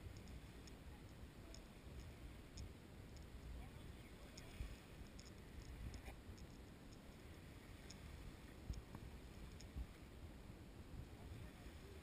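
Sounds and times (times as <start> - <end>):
tiny clicks: 0.0 - 3.5, 4.3 - 7.2, 8.7 - 9.8
faint low rumble: 0.0 - 12.0.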